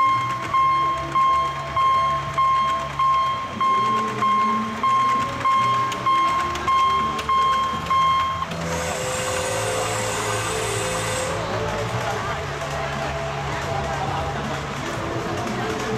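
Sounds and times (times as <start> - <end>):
electronic warning beeps: 0.0 - 9.4
steam locomotive hiss: 8.6 - 11.6.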